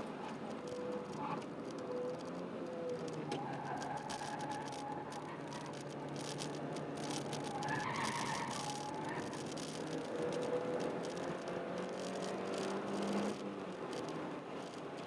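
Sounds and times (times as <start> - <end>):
car engine pulling under load: 1.0 - 14.9
tyre squeal: 3.3 - 5.7, 7.2 - 9.6.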